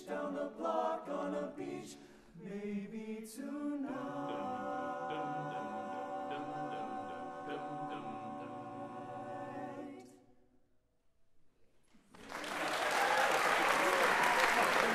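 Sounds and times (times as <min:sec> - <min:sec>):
men's a cappella choir chord: 0:00.0 - 0:10.2
applause: 0:12.0 - 0:14.9.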